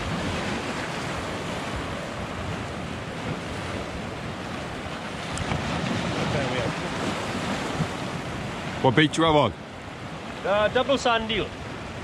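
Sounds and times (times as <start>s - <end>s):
sea waves breaking over rocks: 0.0s - 12.0s.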